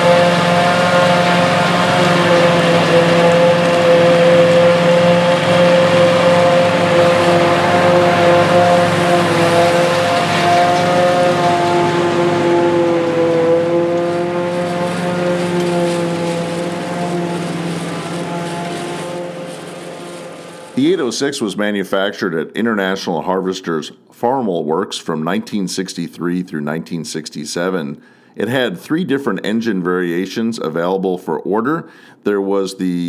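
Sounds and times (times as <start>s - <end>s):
harvester blowing silage: 0.0s - 21.8s
farm machinery droning: 0.0s - 21.9s.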